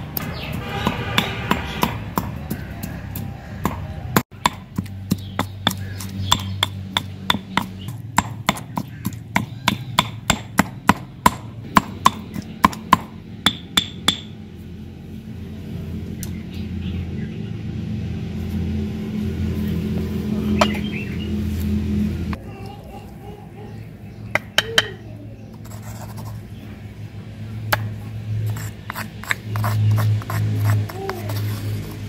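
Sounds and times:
stone pestle pounding in mortar: 0:00.2 - 0:14.4.

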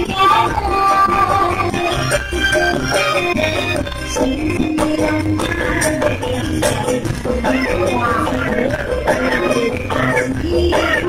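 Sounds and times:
live band music: 0:00.0 - 0:11.0
steady drum beat: 0:00.0 - 0:11.0.

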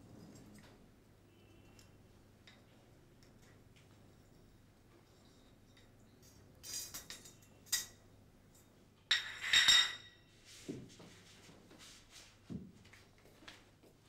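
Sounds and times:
metallic jingling and clinking: 0:03.4 - 0:08.7.

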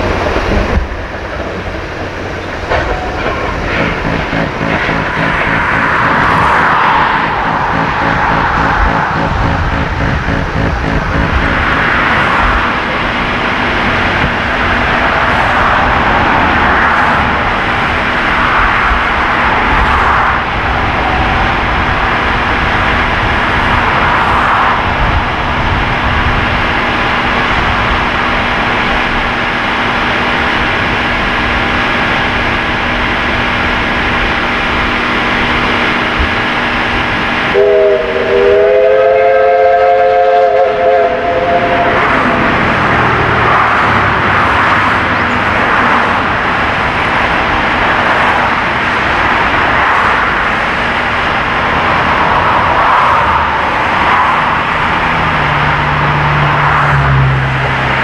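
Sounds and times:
steam locomotive roar: 0:00.0 - 0:58.0
steam whistle chord: 0:02.7 - 0:14.0, 0:37.5 - 0:42.4.

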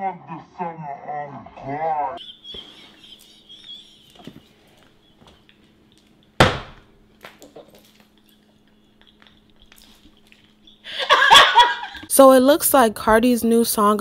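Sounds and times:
sharp thump: 0:06.4 - 0:06.8
woman laughing shrilly: 0:10.7 - 0:12.1.

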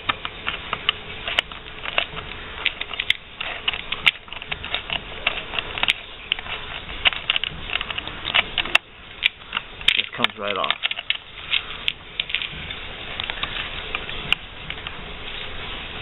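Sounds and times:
hex key clicking and rattling: 0:00.2 - 0:12.6.

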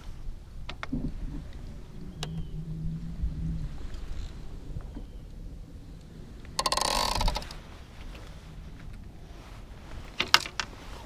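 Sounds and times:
sharp clicks and knocks: 0:06.4 - 0:07.6
fishing reel clicker buzzing: 0:06.6 - 0:07.5.

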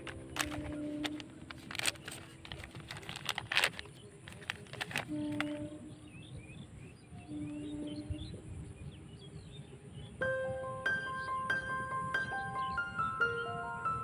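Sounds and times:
plastic packet crackling: 0:00.0 - 0:05.6
birds chirping faintly: 0:00.0 - 0:14.0.

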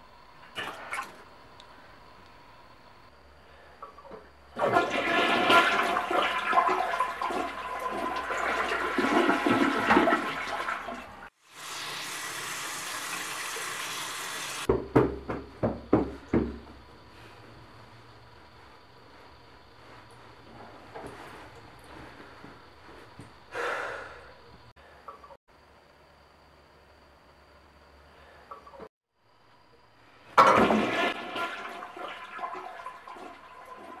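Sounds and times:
toilet flushing: 0:03.9 - 0:14.7, 0:30.4 - 0:34.0
water hissing: 0:11.4 - 0:14.7
sharp knocks: 0:14.7 - 0:16.6.

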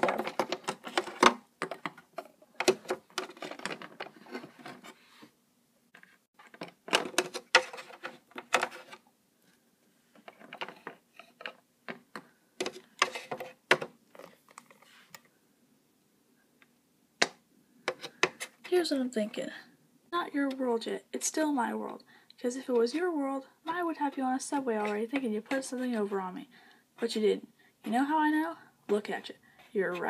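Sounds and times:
plastic toys clicking and knocking: 0:00.0 - 0:04.7, 0:06.4 - 0:09.0, 0:10.2 - 0:14.7.

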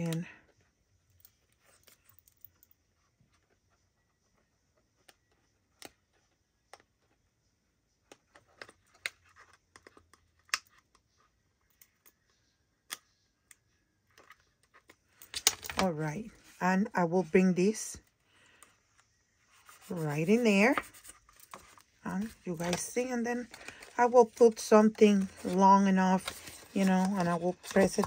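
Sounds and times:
paper box clicks and rustles: 0:19.7 - 0:28.0.

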